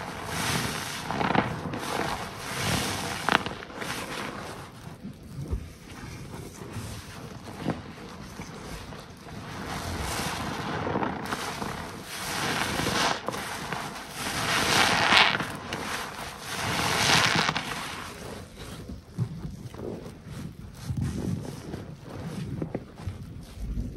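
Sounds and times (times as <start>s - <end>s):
wet sponge squelching: 0.0s - 17.0s.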